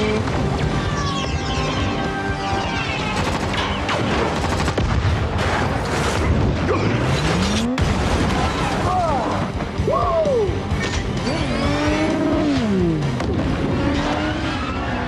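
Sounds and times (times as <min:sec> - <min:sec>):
rapid gunfire: 0:02.9 - 0:06.3
explosion: 0:07.7 - 0:09.1.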